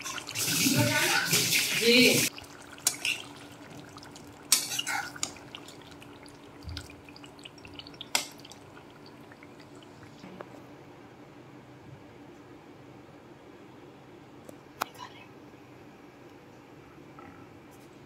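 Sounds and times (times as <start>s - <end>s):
thick gravy simmering and bubbling: 0.0s - 10.4s
faint steady hum: 2.3s - 18.0s
metal spatula scraping a pan: 4.5s - 5.3s.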